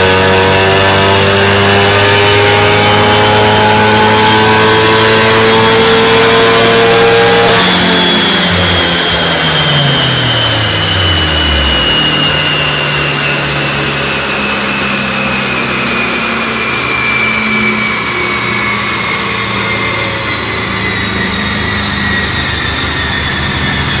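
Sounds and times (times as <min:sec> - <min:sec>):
car engine running: 0:01.4 - 0:24.0
thin high whine: 0:05.3 - 0:24.0.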